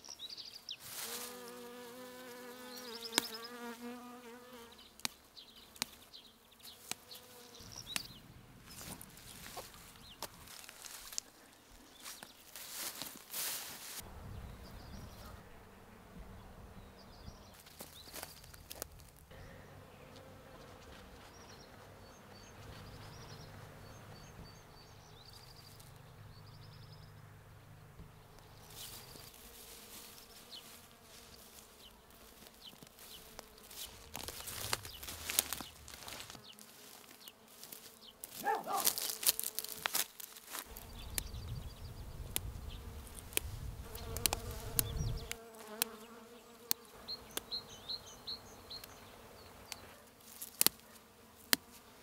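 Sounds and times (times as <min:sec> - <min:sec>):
rustling and crackling in grass: 0:00.0 - 0:03.3, 0:05.0 - 0:14.1, 0:17.5 - 0:19.3, 0:28.4 - 0:46.0, 0:49.6 - 0:52.0
insects buzzing: 0:00.0 - 0:14.0, 0:14.7 - 0:52.0.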